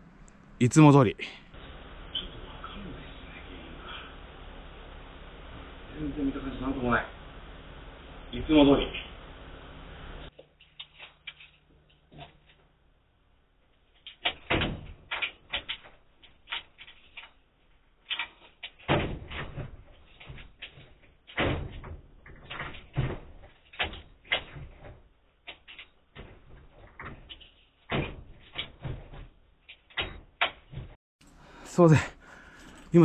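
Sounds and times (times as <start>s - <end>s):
wooden door rattling and banging: 14.0s - 17.4s, 18.0s - 31.0s.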